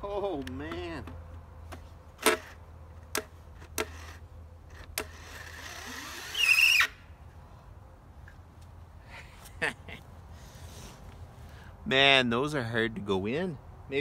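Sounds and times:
high-pitched squeal: 0:05.2 - 0:07.1.

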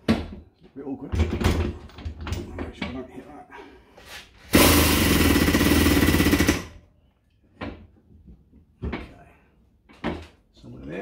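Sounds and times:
hydraulic pump rattling buzz: 0:04.5 - 0:06.7.

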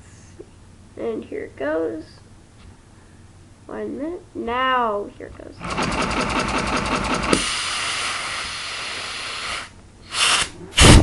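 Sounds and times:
pneumatic engine clattering: 0:05.6 - 0:08.1
compressed air hissing: 0:07.2 - 0:11.0
air tube popping off: 0:10.1 - 0:11.0.

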